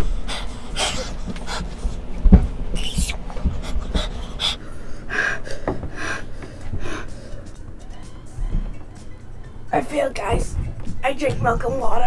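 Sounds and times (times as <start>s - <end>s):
person panting and hissing breaths: 0.0s - 2.1s, 2.7s - 8.8s
low thump: 2.2s - 2.6s.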